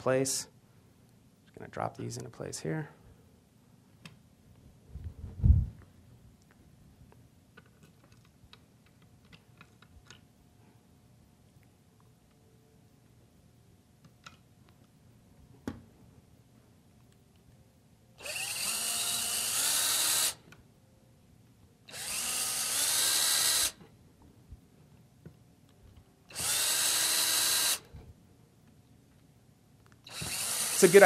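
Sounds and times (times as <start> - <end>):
cordless drill driving screws: 18.2 - 20.4, 21.9 - 23.8, 26.3 - 27.9, 30.1 - 31.0.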